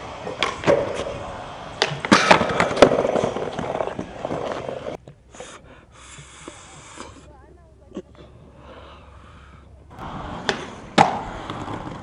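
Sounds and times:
skateboard wheels rolling on concrete: 0.0 - 7.3, 9.4 - 12.0
skateboard clacks and impacts: 0.1 - 5.0, 10.0 - 12.0.

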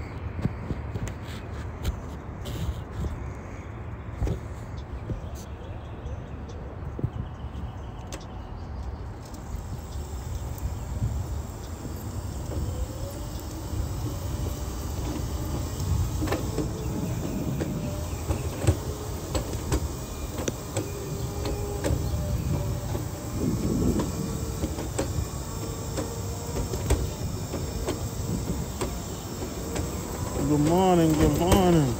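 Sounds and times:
wheelchair rolling over bricks: 11.7 - 31.9.

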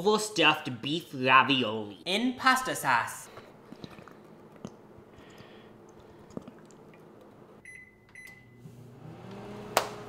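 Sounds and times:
microwave humming: 6.7 - 10.0
microwave keypad beeps: 7.6 - 8.7
microwave click: 9.2 - 10.0.

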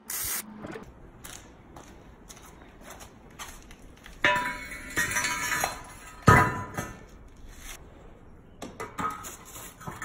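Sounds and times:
metal tools clanking on concrete: 3.6 - 7.2.

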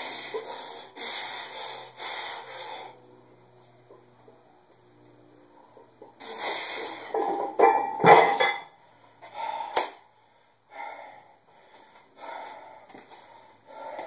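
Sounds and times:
metallic clang of plates: 7.2 - 8.7.

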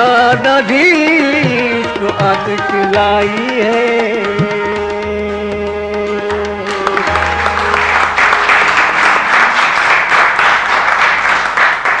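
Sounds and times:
audience applause: 6.7 - 12.0.

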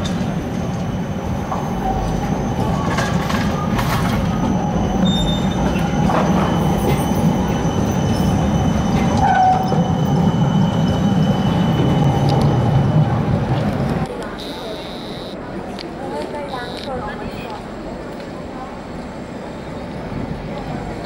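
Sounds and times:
tram wheels rumbling on rail: 0.0 - 14.8, 15.4 - 21.0
high-pitched whine: 14.4 - 15.4.

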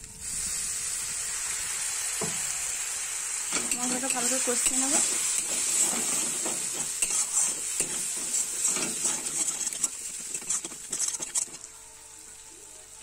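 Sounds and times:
spices sizzling in a pan: 0.0 - 13.0
metal spatula scraping pan: 3.5 - 11.6.

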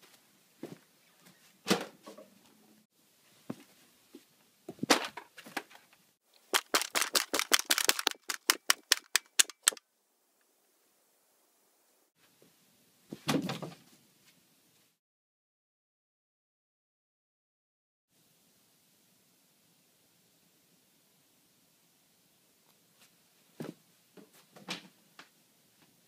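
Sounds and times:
rapid sharp clicks: 6.4 - 9.8.

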